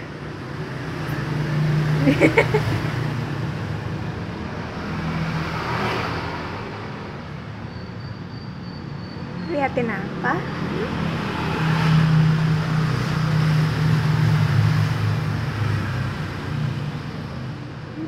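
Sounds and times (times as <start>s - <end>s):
passing traffic engine hum: 0.0s - 18.0s.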